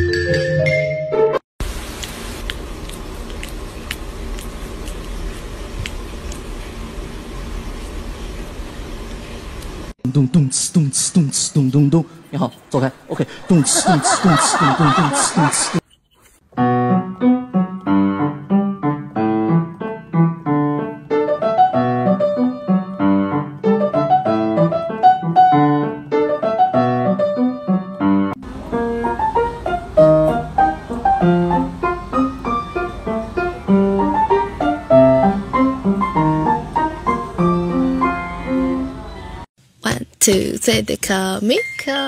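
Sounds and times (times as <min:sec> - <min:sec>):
lively piano music: 0:00.0 - 0:01.4, 0:16.6 - 0:39.5.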